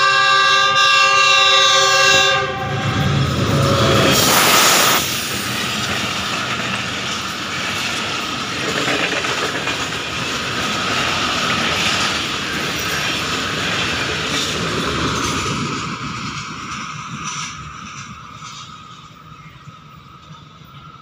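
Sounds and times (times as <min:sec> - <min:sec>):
train rushing rumble: 0:00.0 - 0:21.0
wheels clicking over rail joints: 0:05.4 - 0:19.2.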